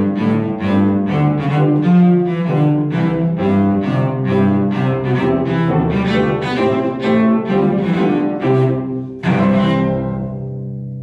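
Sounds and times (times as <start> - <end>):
cello and piano playing: 0.0 - 11.0.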